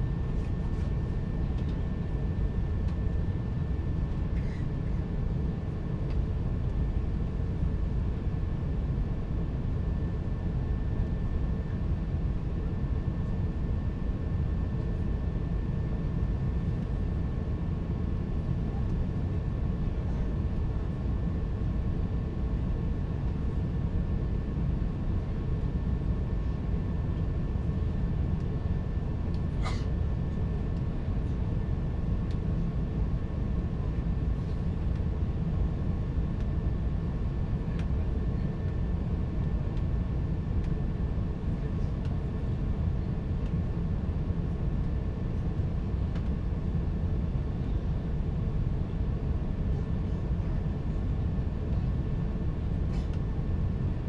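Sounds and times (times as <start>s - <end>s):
aircraft cabin engine rumble: 0.0s - 54.0s.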